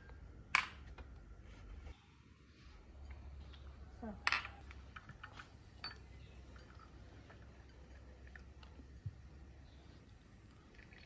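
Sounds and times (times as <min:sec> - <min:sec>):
glass and china clinking: 0:04.1 - 0:08.6.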